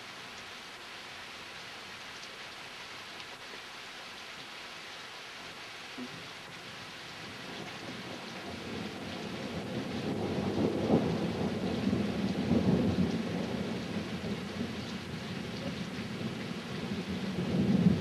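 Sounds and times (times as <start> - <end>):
steady rain: 0.0 - 18.0
thunder rumbling: 7.3 - 18.0.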